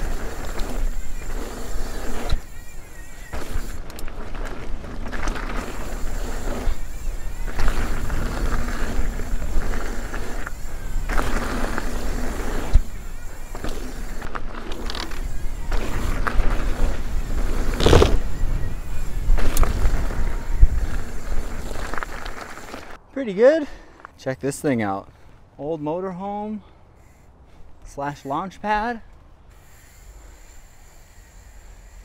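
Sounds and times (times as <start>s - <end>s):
wind buffeting microphone: 0.0s - 22.4s
bike tyres on dirt: 0.0s - 32.0s
bike landing thud: 4.4s - 22.9s.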